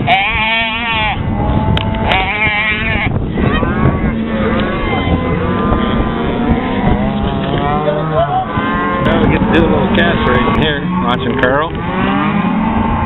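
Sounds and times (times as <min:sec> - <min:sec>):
calves bawling: 0:00.0 - 0:13.0
people's voices: 0:06.4 - 0:11.8.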